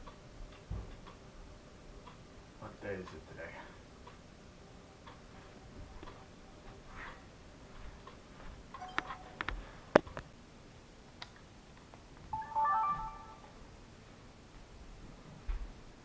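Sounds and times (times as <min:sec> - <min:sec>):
short electronic chime: 0:12.4 - 0:13.6.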